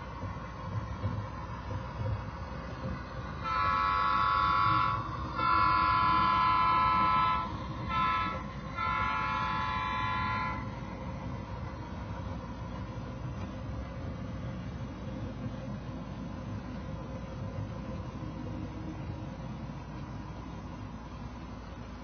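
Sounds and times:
low rumble of running train: 0.0s - 22.0s
model train horn blasts: 3.4s - 10.9s.

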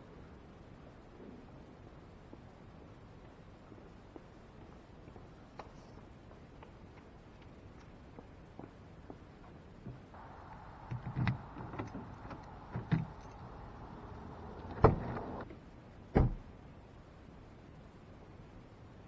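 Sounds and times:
clicks of keys and car door: 10.8s - 15.4s.

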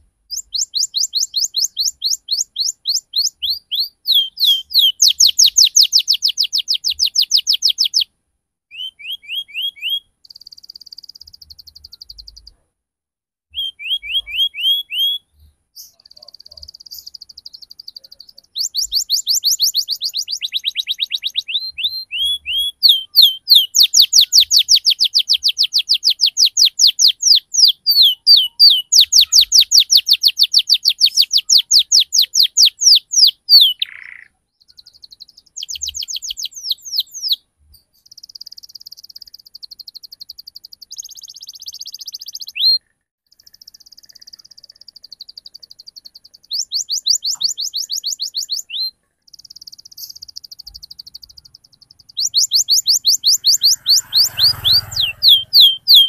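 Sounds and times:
canary singing: 0.0s - 8.1s, 8.7s - 12.6s, 13.5s - 56.0s.

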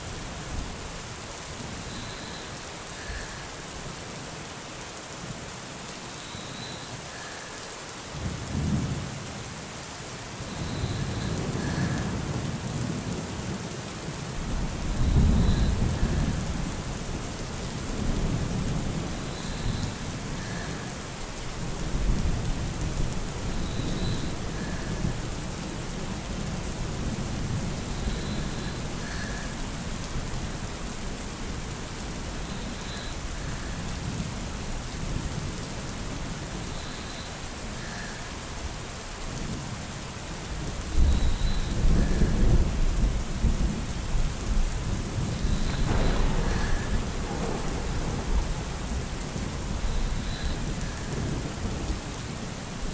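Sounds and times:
steady rain: 0.0s - 52.9s
rolling thunder: 14.4s - 17.2s, 40.9s - 51.9s.

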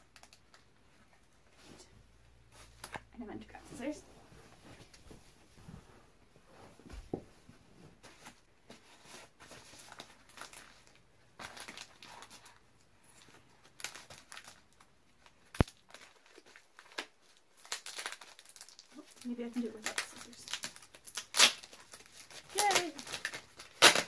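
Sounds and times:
package wrapping crinkling: 9.6s - 24.0s.

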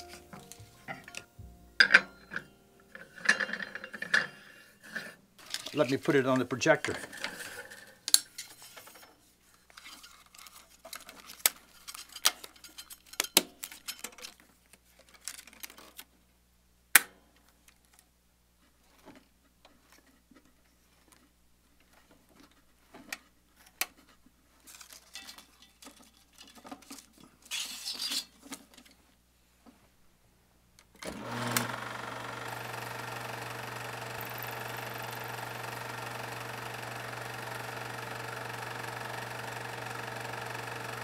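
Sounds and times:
film rustling off reel: 31.0s - 41.0s.

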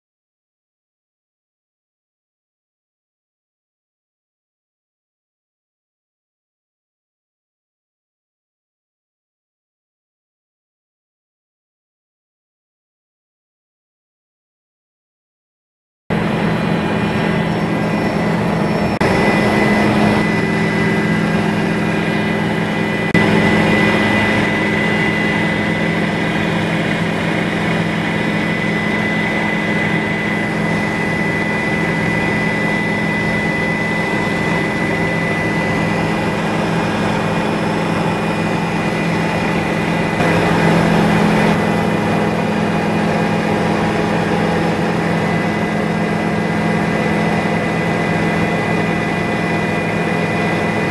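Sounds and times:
helicopter turbine and rotor drone: 16.1s - 50.9s
thin high whine: 16.1s - 50.9s.

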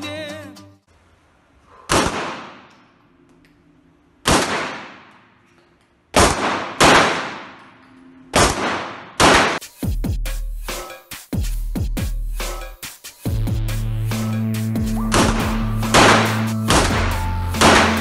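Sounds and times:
handgun shots indoors: 1.9s - 3.0s, 4.2s - 9.6s, 15.1s - 18.0s.

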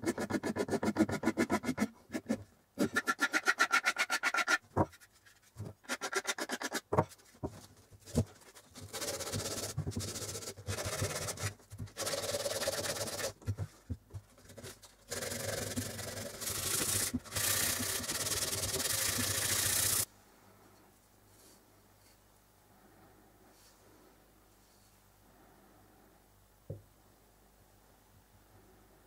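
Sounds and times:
sandpaper scraping wood: 0.0s - 6.9s, 8.4s - 13.6s, 14.4s - 20.1s.

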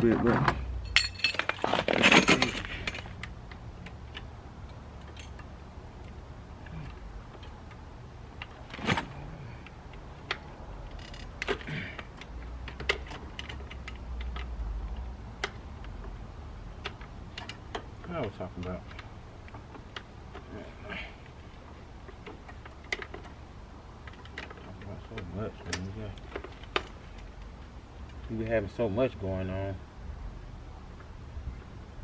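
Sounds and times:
metal tools clinking: 0.2s - 5.5s.

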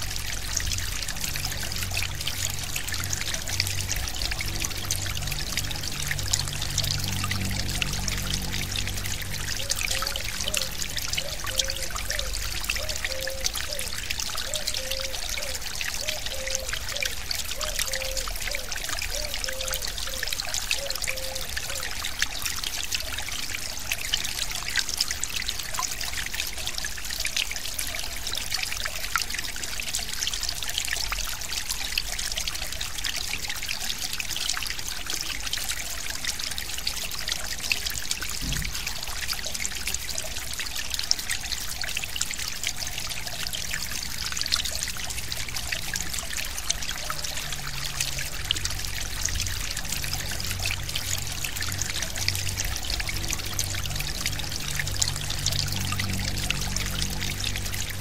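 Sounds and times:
stream babbling: 0.0s - 58.0s.

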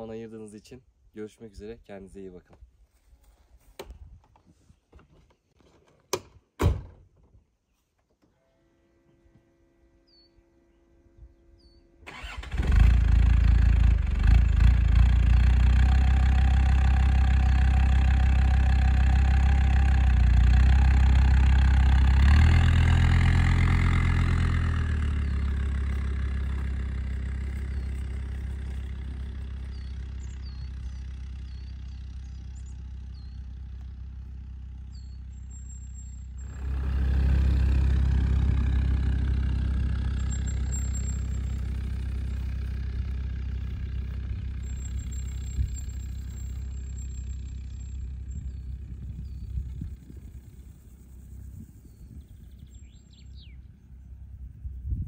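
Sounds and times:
car engine starting and idling: 12.0s - 53.6s.

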